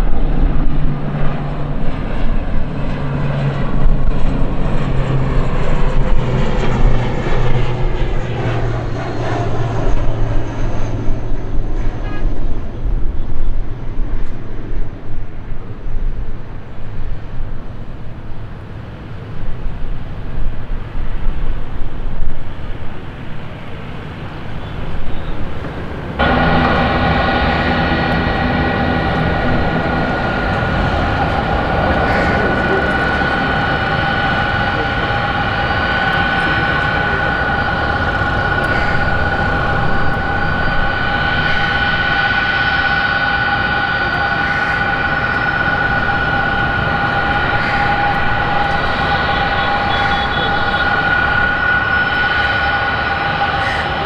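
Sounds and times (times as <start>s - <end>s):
jet engines rumbling and whining: 0.0s - 54.0s.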